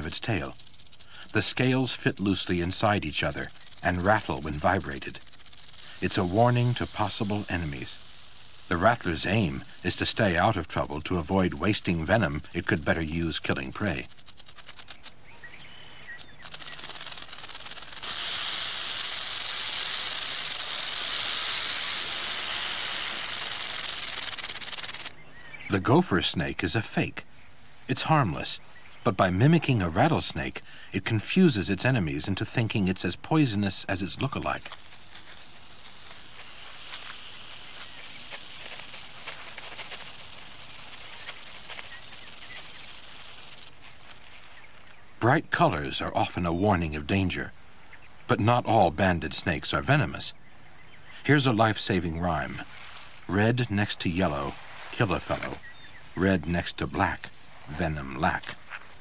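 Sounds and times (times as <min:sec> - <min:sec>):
faint ticks: 0:00.0 - 0:10.7, 0:34.5 - 0:45.0
rattlesnake rattling: 0:00.0 - 0:27.0, 0:29.2 - 0:46.4, 0:51.1 - 0:59.0
high-pitched outdoor hiss: 0:00.0 - 0:59.0.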